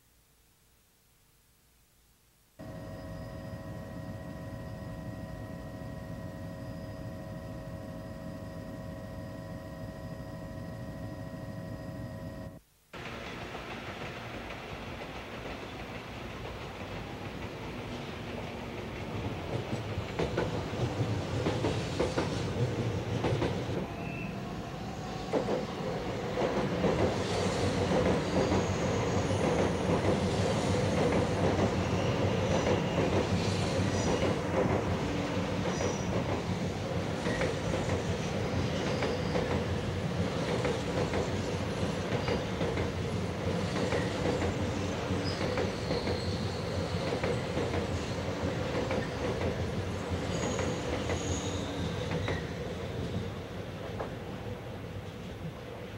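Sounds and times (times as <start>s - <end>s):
train wheels rumbling: 13.0s - 54.3s
high wheel squeals: 38.7s - 39.6s, 44.8s - 47.3s, 50.2s - 53.2s.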